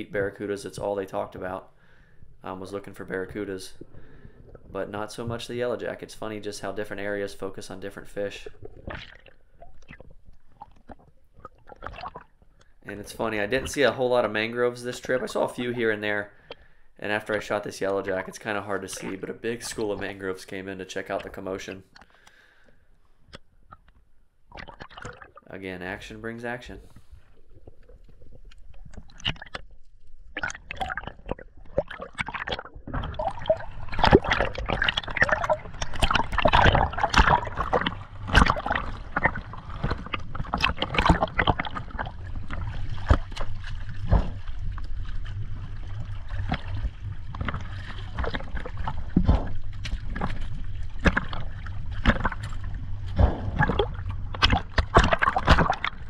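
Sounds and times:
water sloshing and gurgling: 0.0s - 56.0s
low rumble: 42.0s - 55.0s.

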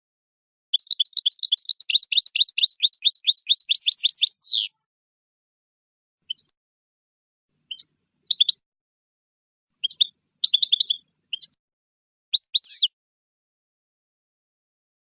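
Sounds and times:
goldfinch singing: 0.8s - 4.8s, 6.3s - 6.5s, 7.7s - 8.6s, 9.8s - 11.6s, 12.3s - 13.0s.

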